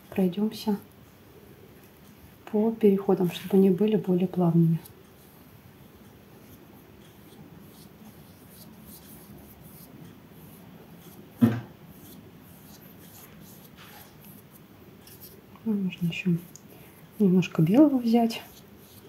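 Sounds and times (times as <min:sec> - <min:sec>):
paintbrush scratching on paper: 0:06.3 - 0:19.0.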